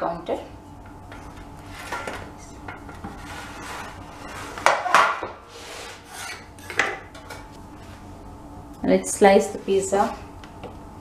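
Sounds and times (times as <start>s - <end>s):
pizza scraping on metal tray: 3.0s - 6.8s.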